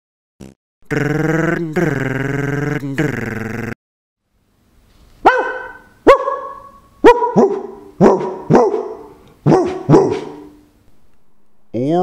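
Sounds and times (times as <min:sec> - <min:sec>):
dog barking: 0:05.2 - 0:10.6.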